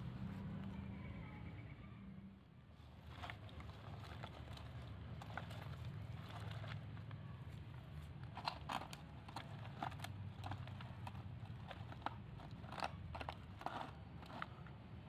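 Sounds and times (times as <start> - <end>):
clicks of small hard objects: 8.1 - 14.9.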